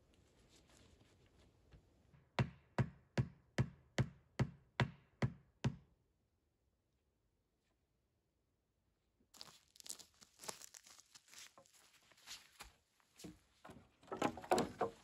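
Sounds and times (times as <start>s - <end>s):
rustling of handled wood: 9.4s - 15.0s
sharp wooden knocks: 13.7s - 15.0s.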